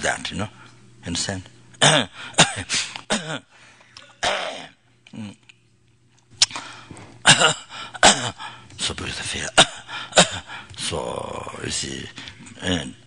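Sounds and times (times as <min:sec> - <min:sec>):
man coughing: 0:01.8 - 0:04.8, 0:07.2 - 0:08.5, 0:09.4 - 0:10.6
man clearing his throat: 0:01.8 - 0:05.3, 0:07.2 - 0:08.4, 0:09.5 - 0:10.5.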